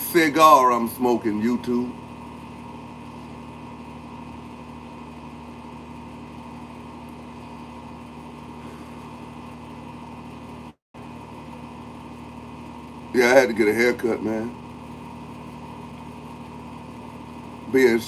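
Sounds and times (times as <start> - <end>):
motor humming: 0.0 - 18.0.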